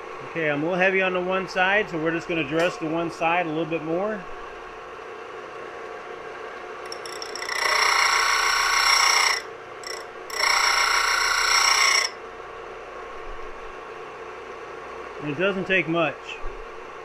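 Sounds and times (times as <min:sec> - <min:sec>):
sander motor running: 0:06.9 - 0:12.1
drill bit grinding on sander: 0:06.9 - 0:12.2.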